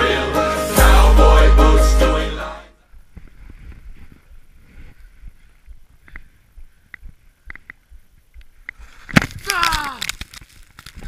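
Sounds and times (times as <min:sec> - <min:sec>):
background music: 0:00.0 - 0:02.8.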